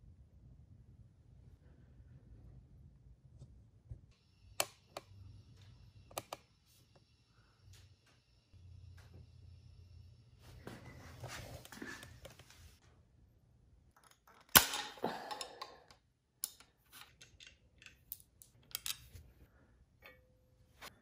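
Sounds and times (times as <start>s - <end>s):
light clicks and taps of tools: 15.4s - 19.2s.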